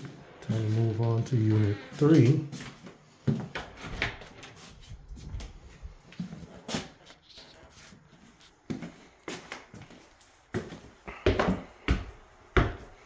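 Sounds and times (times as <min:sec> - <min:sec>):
footsteps on stairs: 0:08.3 - 0:13.0.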